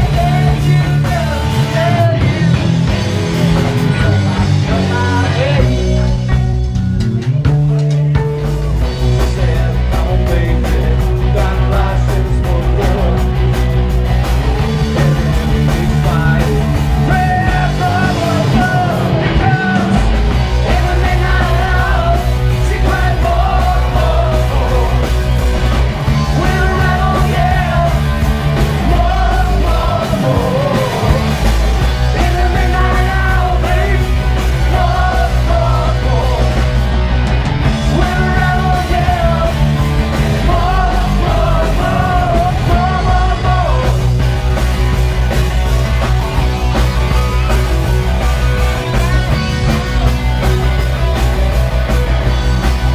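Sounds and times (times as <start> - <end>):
live rock band playing: 0.0 - 52.9
person singing: 26.1 - 31.3, 32.1 - 36.7, 37.7 - 44.1.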